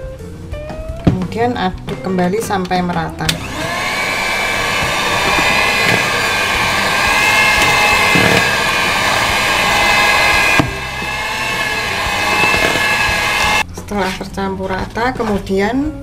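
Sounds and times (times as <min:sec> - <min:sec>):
electric hand mixer whining: 0:03.3 - 0:13.6.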